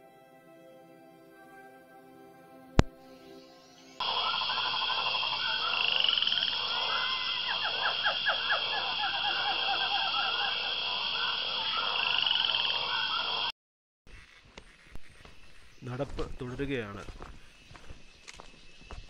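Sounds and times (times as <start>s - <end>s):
high-pitched drone: 3.3s - 13.5s
frogs croaking: 3.4s - 13.5s, 14.1s - 19.0s.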